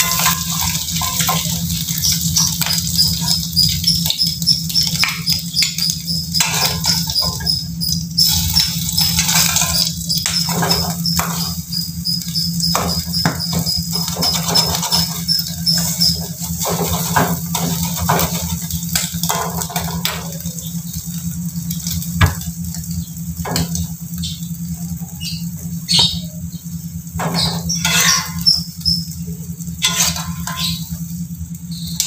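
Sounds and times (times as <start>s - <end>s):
metal spatula scraping a wok: 0.0s - 3.4s, 5.7s - 7.6s, 8.2s - 11.6s, 12.6s - 20.2s, 27.2s - 28.9s, 29.8s - 31.0s
steady low hum: 0.0s - 32.0s.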